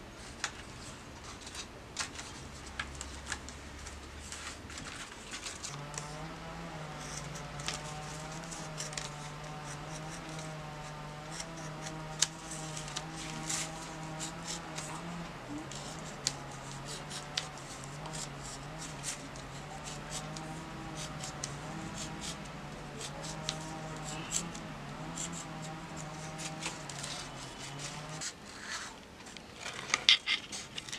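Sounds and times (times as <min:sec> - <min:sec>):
steady low hum: 0:01.8 - 0:28.3
utility knife cutting paper: 0:04.4 - 0:28.4.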